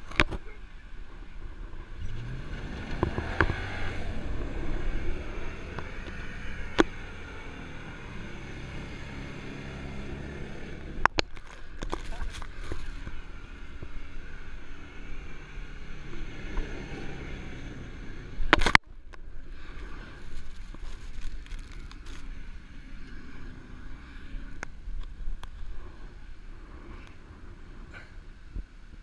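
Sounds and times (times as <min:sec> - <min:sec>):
distant pickup truck engine: 0:00.0 - 0:28.7.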